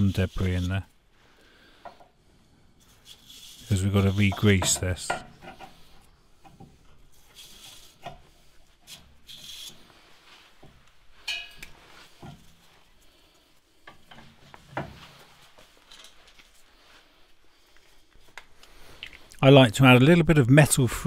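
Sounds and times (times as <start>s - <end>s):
wire brush scrubbing metal: 0.0s - 1.0s, 2.8s - 15.6s
metallic clink: 11.2s - 11.8s.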